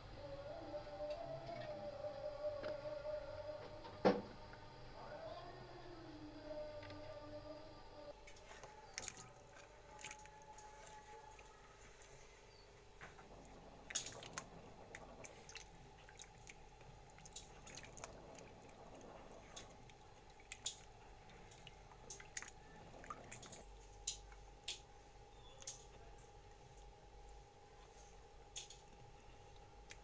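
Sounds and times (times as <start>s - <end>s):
faint steady hum: 0.0s - 30.0s
potatoes splashing in water: 8.8s - 11.5s, 13.3s - 24.8s.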